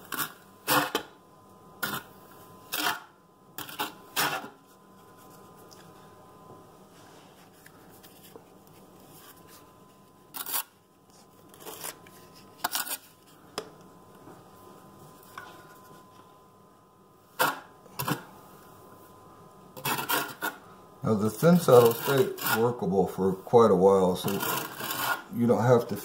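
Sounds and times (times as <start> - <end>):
trowel scraping mortar: 10.3 - 10.7, 19.8 - 20.6, 21.3 - 22.8, 24.2 - 25.3.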